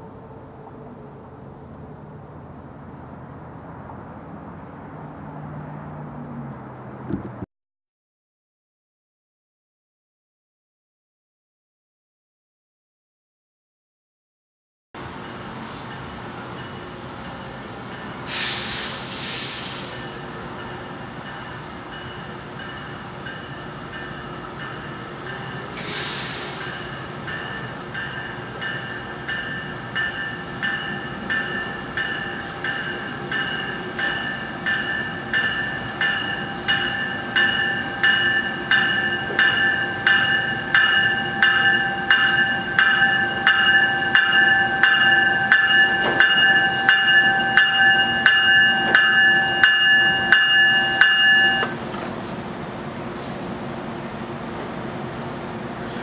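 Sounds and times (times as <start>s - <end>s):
low rumble of train: 0.0s - 7.5s, 15.0s - 56.0s
train bell ringing: 15.0s - 18.4s, 19.8s - 51.8s
short hiss: 18.3s - 20.0s, 25.8s - 26.7s.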